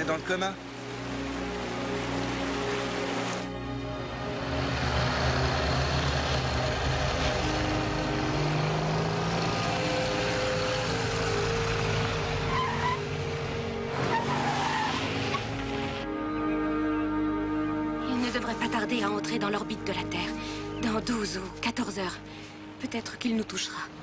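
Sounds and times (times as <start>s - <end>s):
motorcycle engine: 4.3s - 14.3s.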